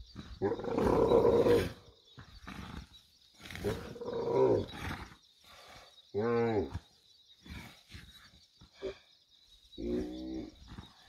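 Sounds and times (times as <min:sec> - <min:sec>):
camel groaning: 0:00.2 - 0:05.2.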